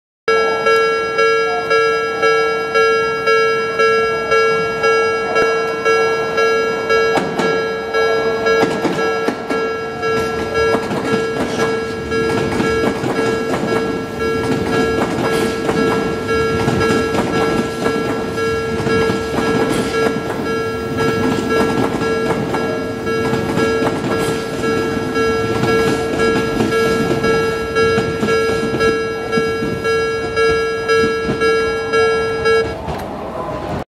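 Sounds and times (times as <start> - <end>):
level crossing alarm clanging: 0.3 - 33.1
electric train rumbling: 0.3 - 33.8.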